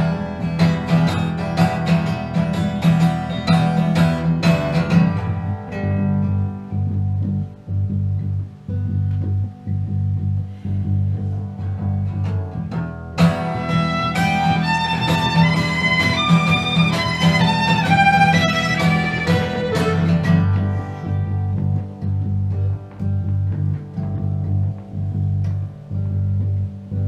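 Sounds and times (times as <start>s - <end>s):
guitars strumming: 0.0s - 27.0s
fiddle melody: 13.2s - 22.5s.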